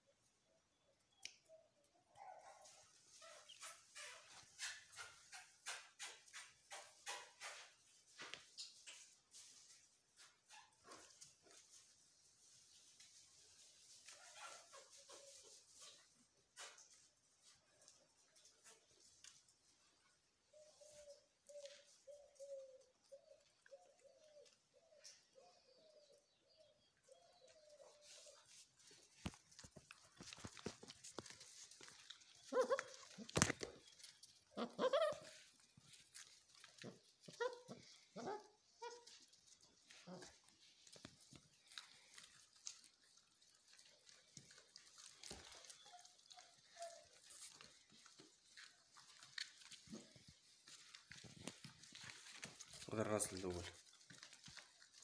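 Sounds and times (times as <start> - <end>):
puppy claws scratching concrete: 3.1 - 7.9, 14.0 - 17.2, 28.0 - 55.0
puppy squeaks: 3.2 - 7.7, 32.5 - 33.7, 34.5 - 35.5
dove cooing: 20.5 - 28.4.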